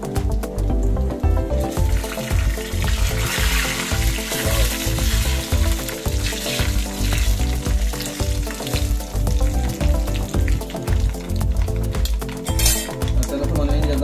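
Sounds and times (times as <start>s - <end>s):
background music with steady beat: 0.0s - 14.0s
spices sizzling in hot oil: 1.5s - 14.0s.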